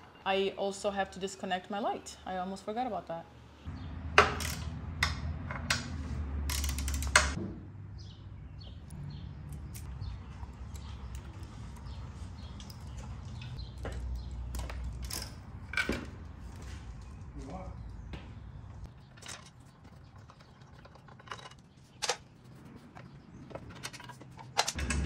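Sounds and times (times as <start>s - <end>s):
hand tools clicking and clanking: 4.2s - 7.4s, 9.5s - 16.2s, 18.9s - 25.0s.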